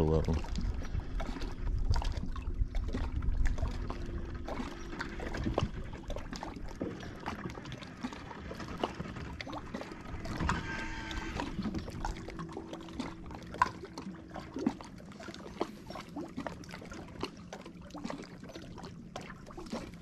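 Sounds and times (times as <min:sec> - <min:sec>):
wind rumble on microphone: 0:00.0 - 0:13.6
water lapping against boat hull: 0:00.0 - 0:20.0.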